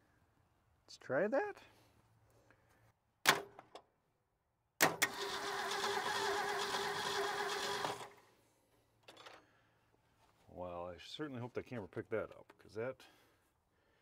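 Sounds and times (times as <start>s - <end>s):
engine starter cranking: 4.8s - 8.2s.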